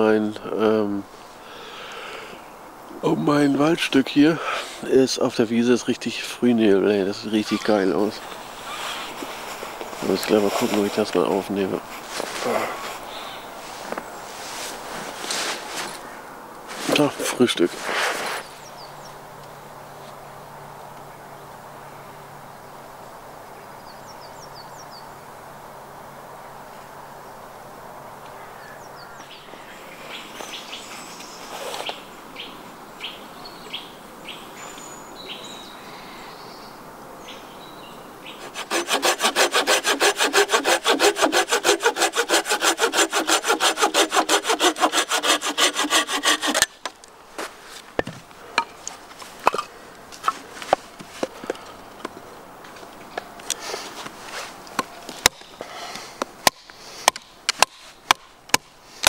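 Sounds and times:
hand saw cutting wood: 0:07.4 - 0:13.0, 0:38.4 - 0:46.9
wooden knocks splitting stick: 0:48.0 - 0:52.2, 0:56.2 - 0:58.7.

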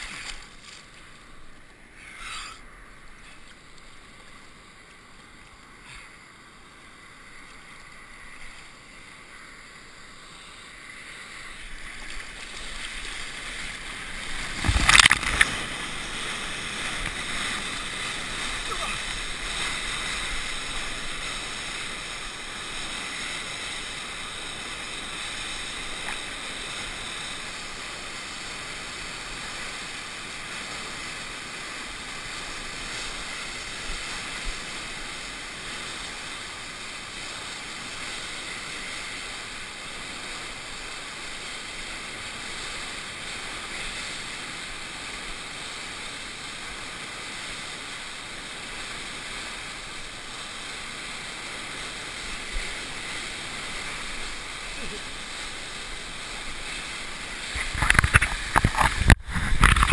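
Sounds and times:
whitewater rushing: 0:00.0 - 0:59.9.

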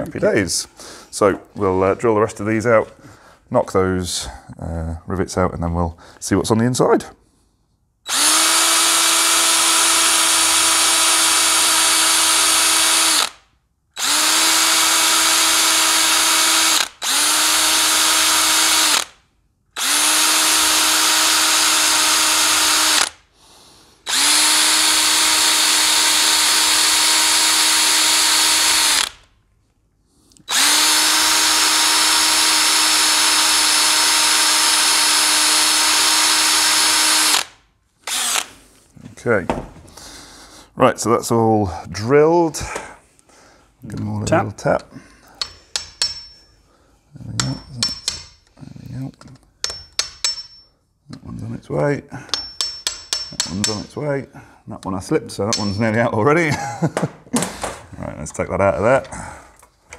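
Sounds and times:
power drill whining: 0:08.1 - 0:13.4, 0:14.0 - 0:19.2, 0:19.8 - 0:23.2, 0:24.0 - 0:29.3, 0:30.4 - 0:38.6.

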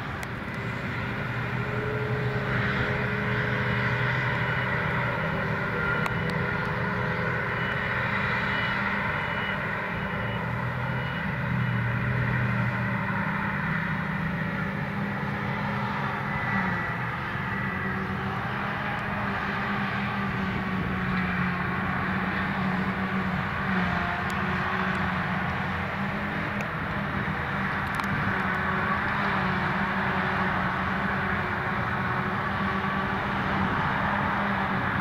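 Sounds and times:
engines droning: 0:00.0 - 0:35.0
rush of chopping and blowing grass: 0:00.0 - 0:35.0.

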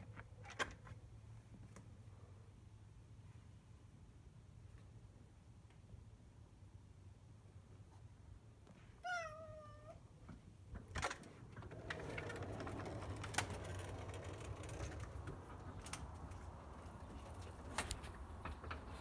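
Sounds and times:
cat meowing: 0:09.0 - 0:10.0.

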